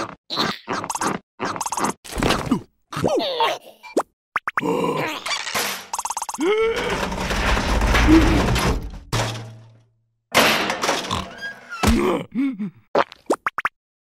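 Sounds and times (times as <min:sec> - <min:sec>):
metal bin rolling rumble: 0:06.7 - 0:09.7
clattering burst: 0:06.7 - 0:09.8.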